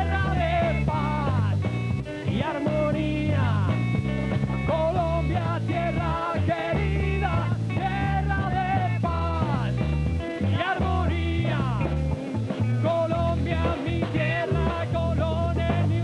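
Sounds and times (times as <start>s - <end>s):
bass line: 0.0s - 16.0s
drums: 0.0s - 16.0s
electric guitar: 0.0s - 16.0s
men singing: 0.0s - 16.0s.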